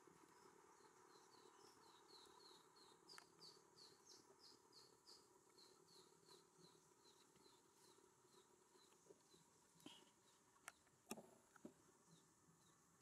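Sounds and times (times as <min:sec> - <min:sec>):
small bird chirping: 0:00.3 - 0:10.9
faint click: 0:03.1 - 0:03.3.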